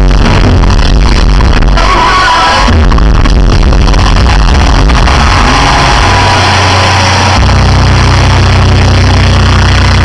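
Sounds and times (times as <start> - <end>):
deep fluttering sound system rumble: 0.0 - 1.8, 2.7 - 10.0.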